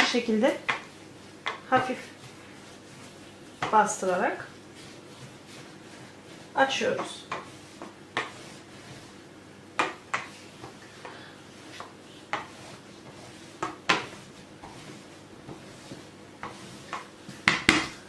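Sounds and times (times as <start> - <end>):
rolling pin knocking on table: 9.8 - 10.3, 16.9 - 18.0.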